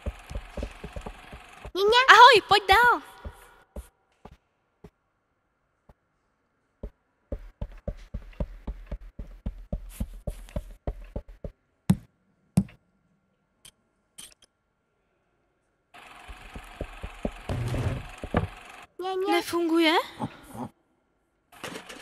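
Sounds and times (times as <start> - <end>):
heavy thumps: 0.0 - 1.8, 7.3 - 12.8, 16.3 - 18.6
light footsteps on wooden floor: 0.0 - 1.8, 2.7 - 4.4, 6.8 - 12.7, 16.3 - 18.6.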